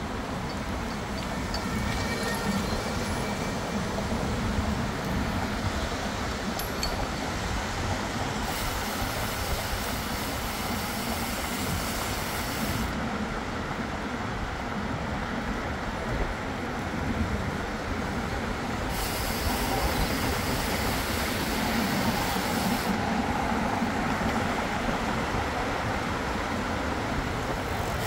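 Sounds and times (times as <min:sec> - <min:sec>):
vehicle rumble and hiss: 0:00.0 - 0:28.0
higher hiss: 0:08.4 - 0:13.0, 0:18.9 - 0:23.2.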